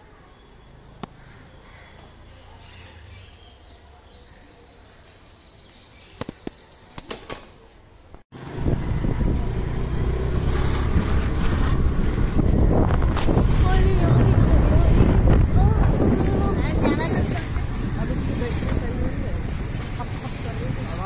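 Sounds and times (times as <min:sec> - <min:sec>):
wind buffeting microphone: 0:08.4 - 0:21.0.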